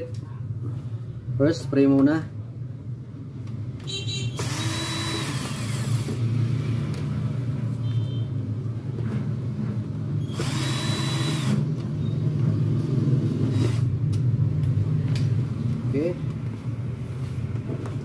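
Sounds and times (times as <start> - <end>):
cordless drill motor whine: 4.4 - 6.2, 10.2 - 11.6.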